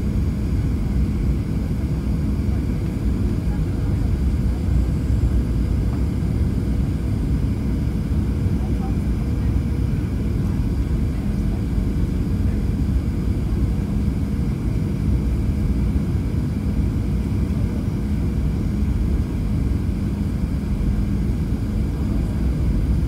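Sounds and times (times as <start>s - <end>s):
airplane cabin engine roar: 0.0s - 23.0s.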